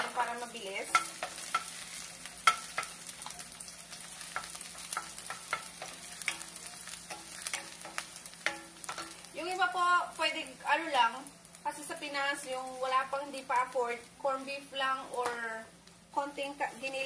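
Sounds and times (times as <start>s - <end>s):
garlic sizzling in hot oil: 0.0s - 17.0s
wooden spoon scraping a pan: 0.8s - 9.3s.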